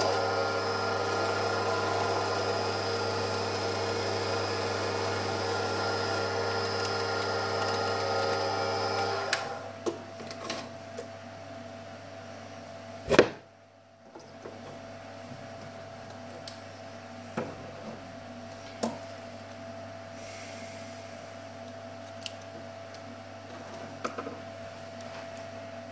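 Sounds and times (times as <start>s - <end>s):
lathe whining: 0.0s - 9.7s.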